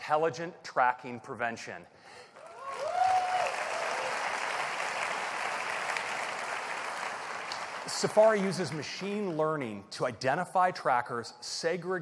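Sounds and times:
person whooping: 2.4 - 4.2
audience applauding: 2.4 - 9.1.

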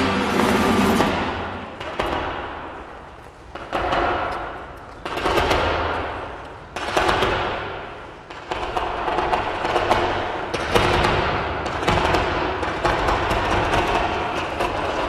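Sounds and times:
music over arena sound system: 0.0 - 1.6
heavy percussive hits: 0.0 - 2.8.

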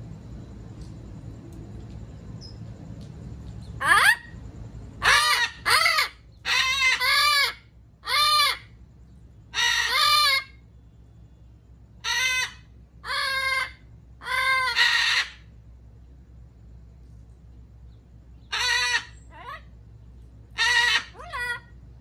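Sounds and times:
parrot calling: 3.6 - 4.4, 5.0 - 8.8, 9.5 - 10.7, 12.0 - 15.5, 18.4 - 19.8, 20.5 - 21.8.

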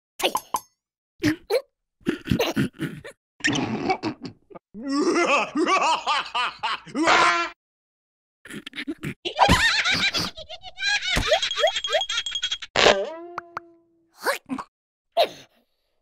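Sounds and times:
high-pitched cartoon laughter: 9.3 - 12.6.

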